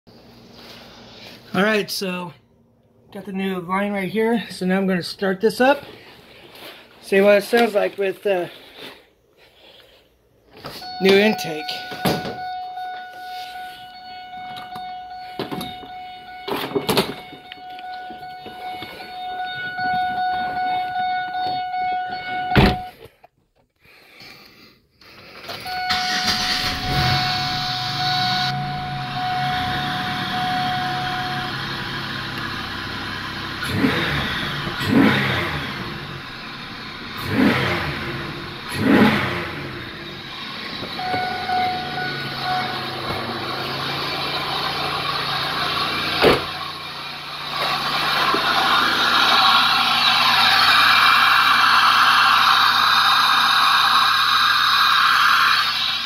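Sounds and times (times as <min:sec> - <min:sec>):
steady electronic tone: 0:10.8 - 0:23.0, 0:25.7 - 0:44.8
car engine idling and revving: 0:25.7 - 0:56.0.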